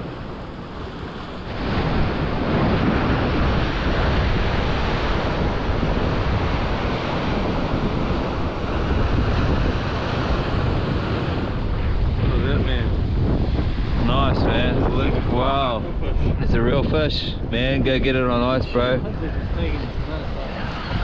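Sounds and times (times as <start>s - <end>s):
surf breaking on rocks: 0.0s - 15.9s
wind buffeting microphone: 0.0s - 21.0s.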